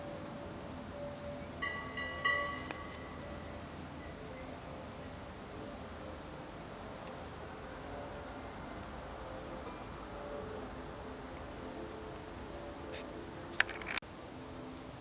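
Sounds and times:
bell-like ring: 1.0 - 4.6.

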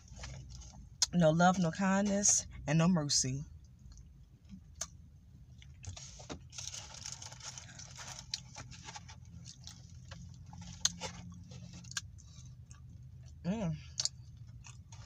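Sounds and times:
crunching fried chicken: 5.6 - 15.0.

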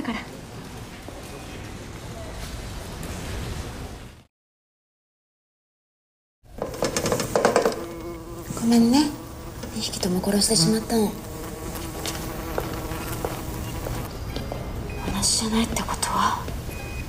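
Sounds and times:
blowflies buzzing: 6.6 - 14.2.

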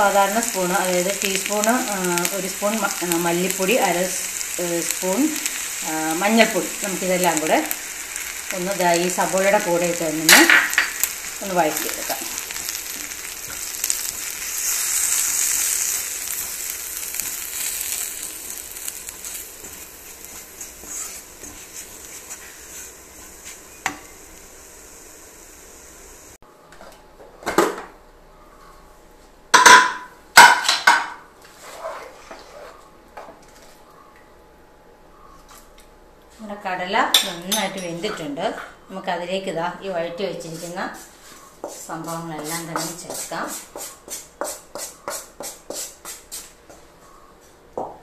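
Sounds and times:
onions sizzling in oil: 0.0 - 26.4, 39.9 - 46.5
wooden spatula stirring: 18.5 - 23.7, 40.5 - 46.2.

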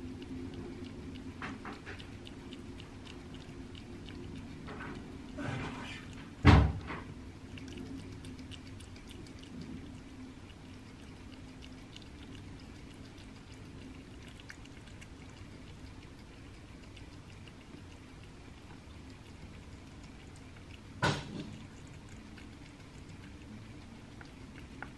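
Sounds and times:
cat licking and chewing: 0.0 - 24.9
loud thump: 6.4 - 6.8.

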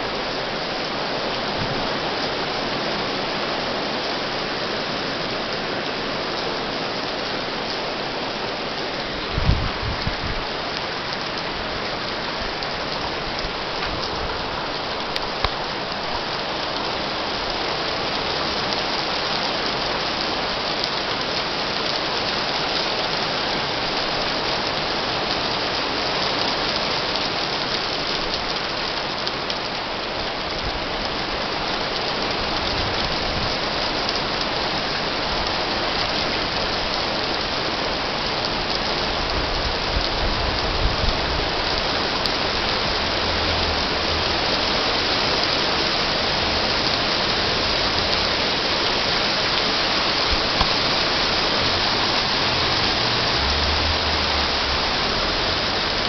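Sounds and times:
heavy rain and graupel on pavement: 0.0 - 56.0.

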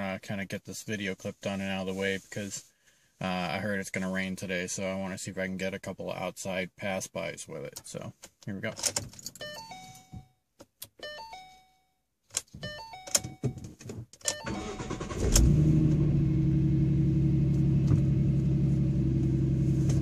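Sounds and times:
car chime electronic tones: 9.4 - 10.4, 14.3 - 15.0
car starter cranking: 14.3 - 16.3
car engine idling: 14.5 - 20.0.

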